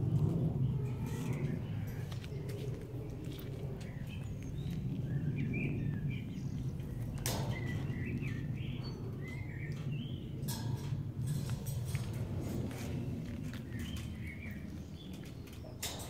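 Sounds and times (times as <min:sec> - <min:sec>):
low background rumble: 0:00.0 - 0:16.0
small birds chirping: 0:00.1 - 0:16.0.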